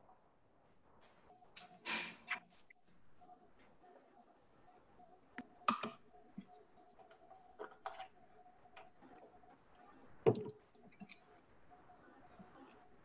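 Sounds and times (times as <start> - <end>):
faint clicks and knocks: 5.3 - 11.4.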